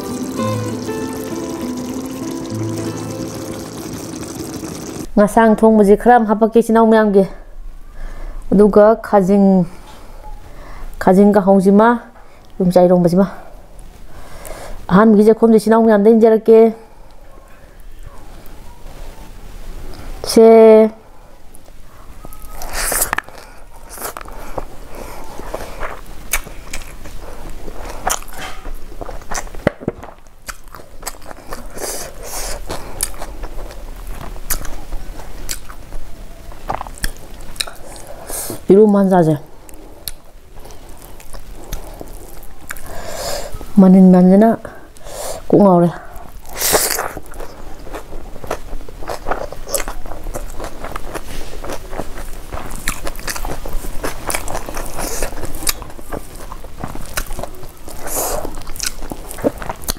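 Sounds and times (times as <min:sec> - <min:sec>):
person chewing food: 0:22.5 - 0:38.6, 0:39.7 - 0:43.7, 0:46.4 - 0:59.9
crunches and mouth clicks: 0:25.4 - 0:38.1, 0:46.4 - 0:59.9.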